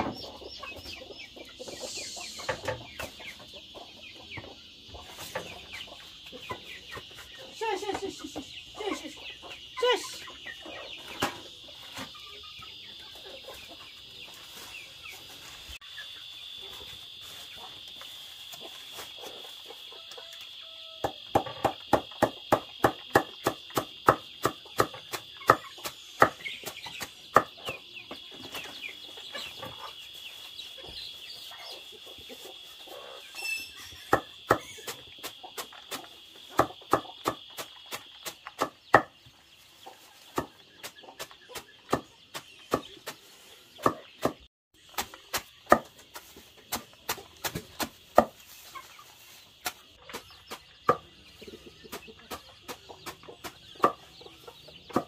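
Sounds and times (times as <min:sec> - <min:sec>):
chickens clucking: 0:00.0 - 0:55.0
cleaver chopping on wooden board: 0:45.0 - 0:45.9.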